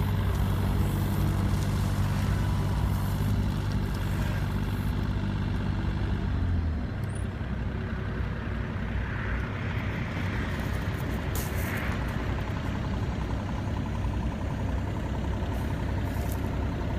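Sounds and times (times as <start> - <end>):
excavator diesel engine running: 0.0 - 16.9.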